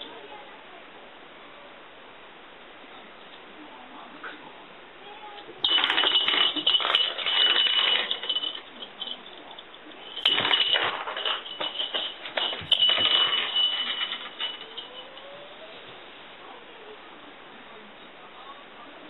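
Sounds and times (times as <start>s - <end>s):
small jingle bell jingling: 5.6s - 15.5s.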